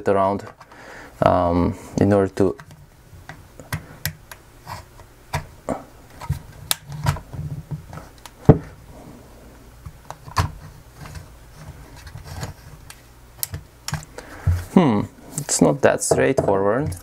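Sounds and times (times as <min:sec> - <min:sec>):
plastic clips clicking and snapping: 0:06.1 - 0:07.2, 0:12.8 - 0:14.2.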